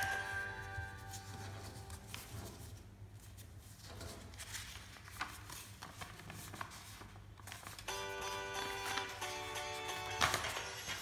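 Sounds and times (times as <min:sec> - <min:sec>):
paper rustling and creasing: 0:00.0 - 0:07.9, 0:10.2 - 0:11.0
paper crackle: 0:01.0 - 0:07.9, 0:10.1 - 0:11.0.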